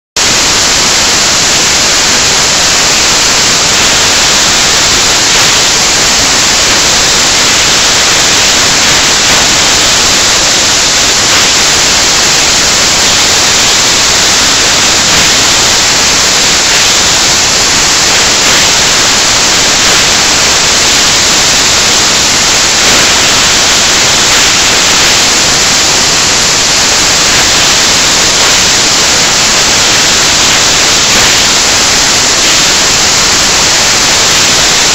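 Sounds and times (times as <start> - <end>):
static hiss: 0.2 - 34.9.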